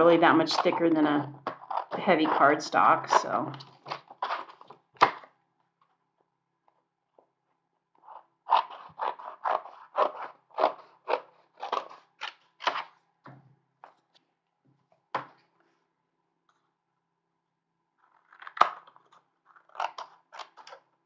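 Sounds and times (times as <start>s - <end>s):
scissors cutting heavy card: 8.1s - 12.9s.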